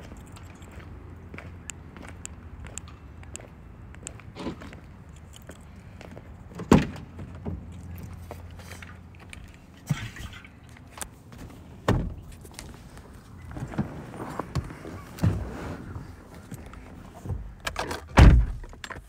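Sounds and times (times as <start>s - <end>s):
car door thudding shut: 11.9s - 12.2s, 18.2s - 18.7s.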